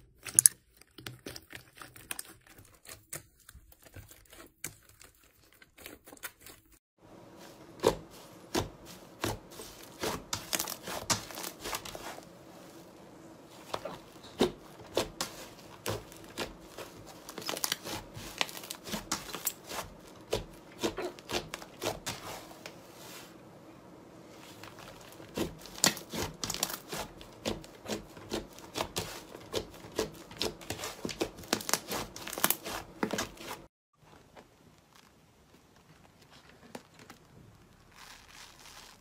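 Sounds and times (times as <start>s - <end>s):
slime popping and crackling: 8.5s - 12.1s, 13.6s - 22.2s.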